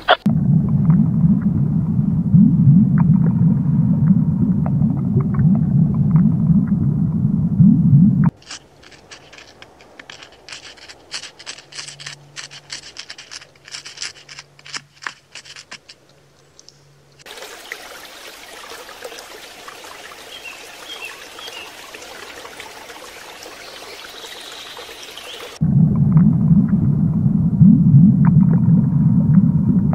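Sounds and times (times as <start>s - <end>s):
beaver chewing leaves: 8.3s - 17.3s
rushing water: 17.2s - 25.6s.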